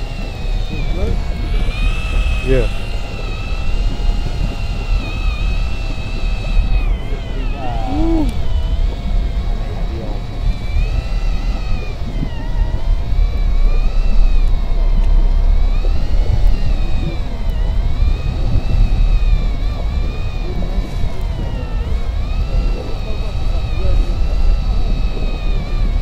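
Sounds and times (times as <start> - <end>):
fishing reel motor whine: 0.0 - 26.0.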